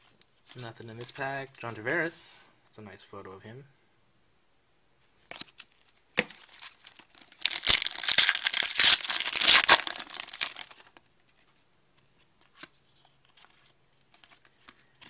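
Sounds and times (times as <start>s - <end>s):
sharp foil crackle: 6.3s - 10.9s
foil wrapper crinkling and tearing: 6.3s - 11.0s.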